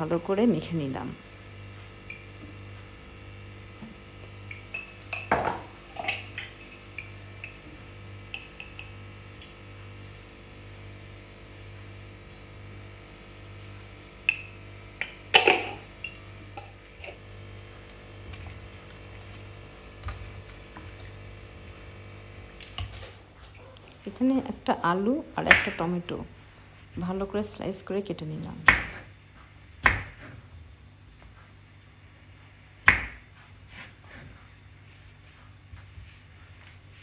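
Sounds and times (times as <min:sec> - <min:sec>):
low steady hum: 0:00.0 - 0:37.0
spoon clinking on metal bowl: 0:08.3 - 0:09.0.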